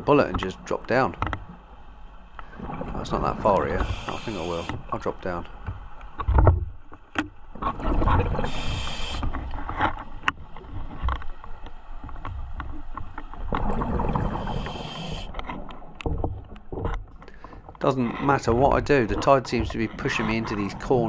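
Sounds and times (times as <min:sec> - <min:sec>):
diver breathing through regulator: 0:03.7 - 0:04.9, 0:08.4 - 0:09.4, 0:14.1 - 0:15.4, 0:17.2 - 0:17.6
clicks and knocks: 0:15.3 - 0:17.8.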